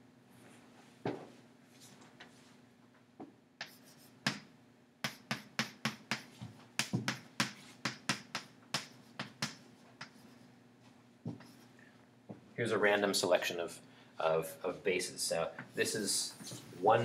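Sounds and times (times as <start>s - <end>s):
chalk tapping on chalkboard: 3.6s - 10.4s, 11.3s - 11.6s.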